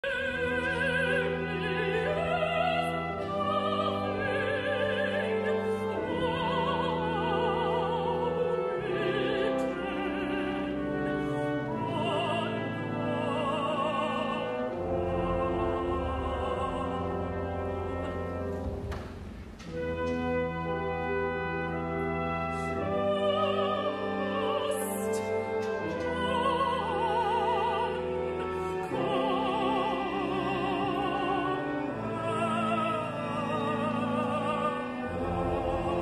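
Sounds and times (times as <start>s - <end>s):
operatic singing: 0.0s - 36.0s
orchestra sustained chords: 0.1s - 36.0s.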